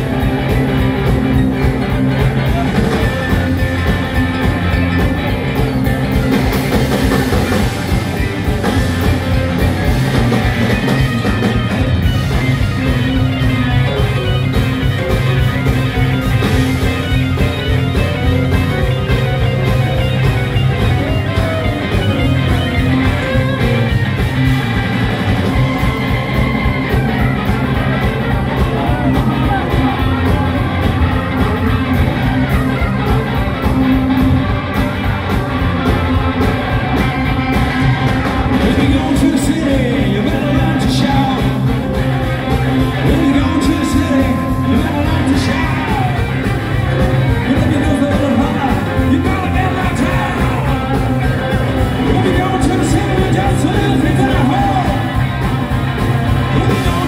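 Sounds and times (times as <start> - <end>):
blues-rock band playing loud: 0.0 - 57.0
person singing: 38.5 - 42.1, 42.8 - 55.3, 56.4 - 57.0.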